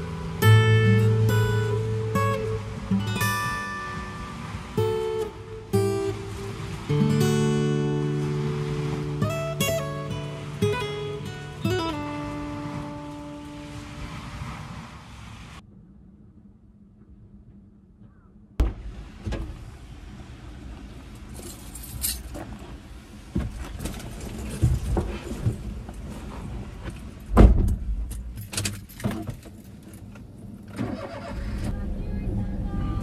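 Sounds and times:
car door shutting with thud: 18.6s - 19.6s, 27.3s - 28.1s
keys jangling: 21.4s - 22.4s.

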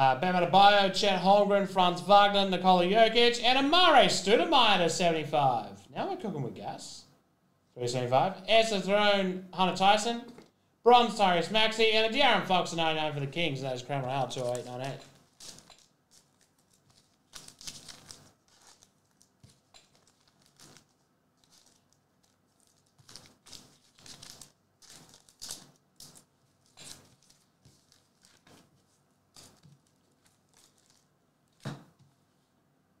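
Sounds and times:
trading cards rustling and sliding: 14.4s - 31.7s.

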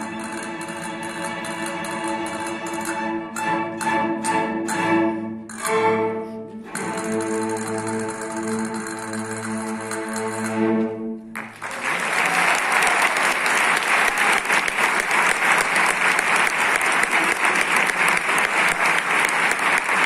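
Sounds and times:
audience applause: 11.4s - 20.0s.

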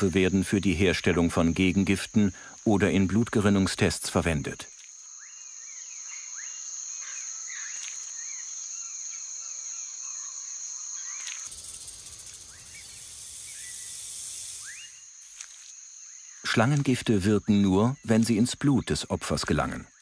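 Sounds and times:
insect trill: 0.0s - 20.0s
rattlesnake rattle buzzing: 10.7s - 16.4s.

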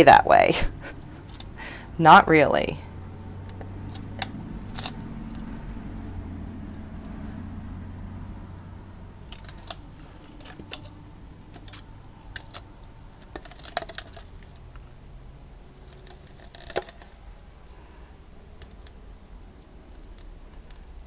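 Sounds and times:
low steady hum: 0.0s - 21.0s
plastic cups clicking and crinkling: 9.2s - 14.9s, 15.8s - 17.7s.

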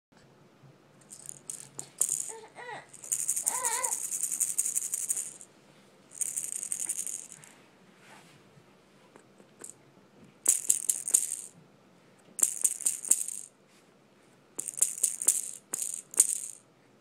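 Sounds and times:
toy rattle shaking: 1.0s - 5.5s, 6.1s - 7.5s, 10.4s - 11.5s, 12.4s - 13.5s, 14.6s - 16.6s.

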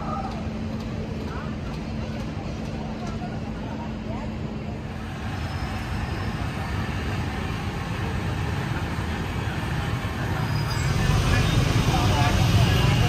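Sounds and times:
city street traffic rumble: 0.0s - 13.0s.

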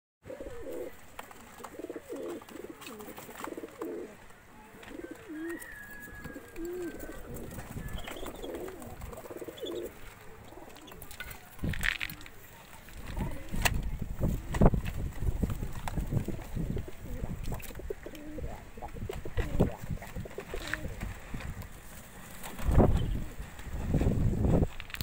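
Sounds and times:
pigeons cooing: 0.2s - 11.5s, 15.2s - 21.4s.

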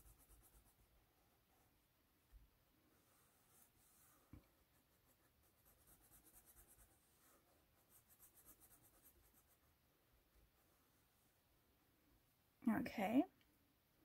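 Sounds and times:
crayon scratching on paper: 0.0s - 0.9s, 3.4s - 9.7s.

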